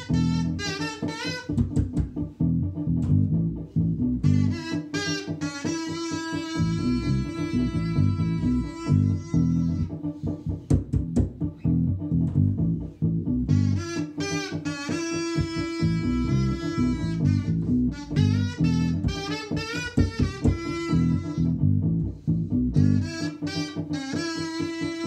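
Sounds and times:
kazoo buzzing a melody: 0:00.0 - 0:01.9, 0:04.2 - 0:10.0, 0:13.5 - 0:21.6, 0:22.8 - 0:25.0
plucked electric bass: 0:00.0 - 0:25.0.

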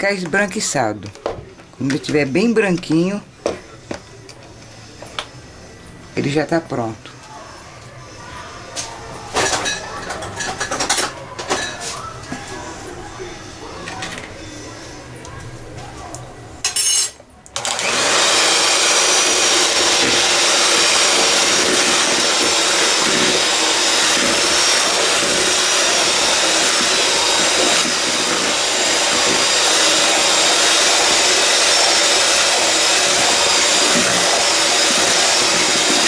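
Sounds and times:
electric mixer running: 0:17.6 - 0:36.0.

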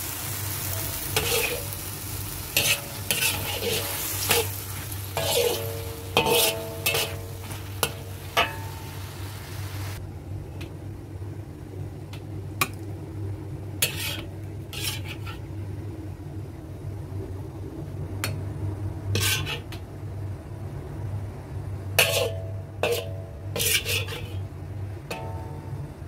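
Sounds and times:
metallic rings off wok: 0:00.0 - 0:09.2, 0:22.0 - 0:24.4, 0:25.1 - 0:25.8
food sizzling in a wok: 0:00.0 - 0:10.0, 0:13.8 - 0:15.5, 0:19.1 - 0:19.7, 0:22.0 - 0:24.5
spatula scraping wok: 0:00.0 - 0:10.0, 0:13.8 - 0:15.6, 0:19.1 - 0:19.8, 0:22.0 - 0:24.5.

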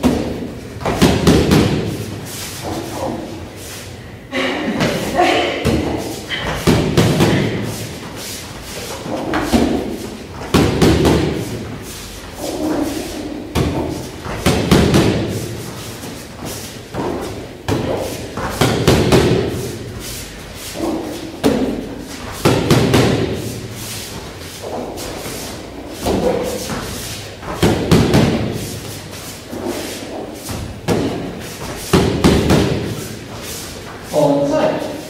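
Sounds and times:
kicks and punches on pads: 0:00.0 - 0:02.0, 0:05.6 - 0:07.6, 0:09.3 - 0:11.6, 0:13.5 - 0:15.4, 0:17.0 - 0:19.7, 0:22.4 - 0:23.4, 0:26.0 - 0:28.7, 0:30.8 - 0:33.0.

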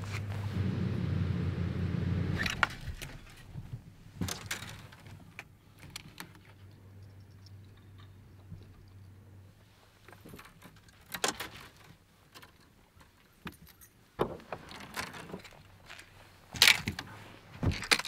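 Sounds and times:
fishing gear knocking and rattling: 0:17.6 - 0:18.0.

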